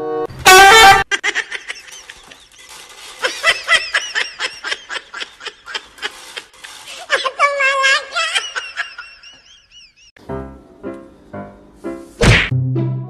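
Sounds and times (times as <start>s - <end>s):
high-pitched laughter: 0.5s - 10.1s.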